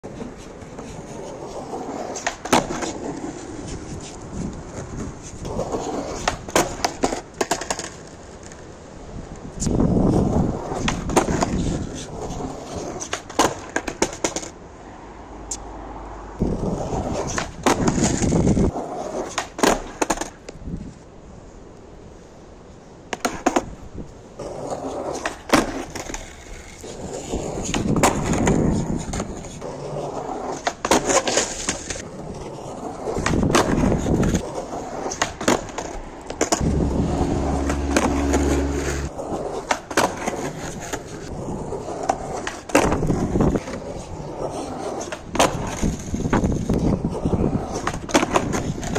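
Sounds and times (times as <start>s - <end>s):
skateboard wheels rolling on asphalt: 0.0s - 48.9s
skateboard landing clacks: 2.2s - 3.3s, 13.0s - 14.5s, 17.2s - 18.4s, 19.3s - 20.5s
skateboard tail pops: 2.2s - 3.3s, 10.8s - 11.9s, 17.1s - 18.6s, 19.2s - 20.6s, 23.1s - 23.8s, 25.2s - 26.2s, 33.1s - 34.4s, 42.0s - 43.8s
vehicle engine hum: 36.6s - 39.2s.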